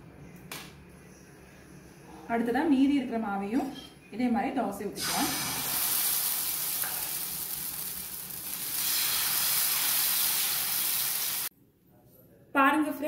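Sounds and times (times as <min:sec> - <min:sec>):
batter sizzling on hot pan: 0:05.0 - 0:11.5.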